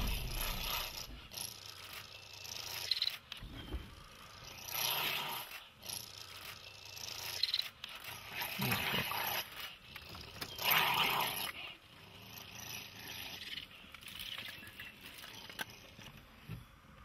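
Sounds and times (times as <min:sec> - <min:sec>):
animals growling and snarling: 0:00.0 - 0:16.1.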